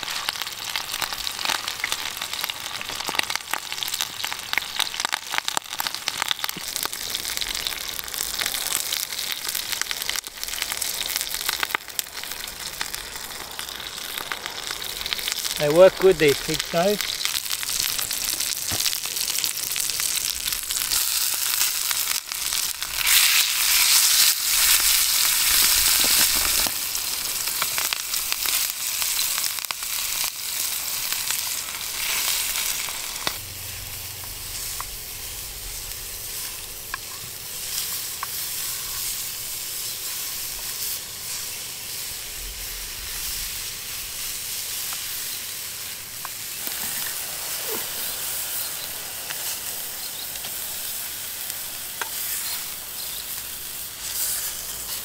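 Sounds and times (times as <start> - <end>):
steak sizzling in frying pan: 0.0 - 55.0.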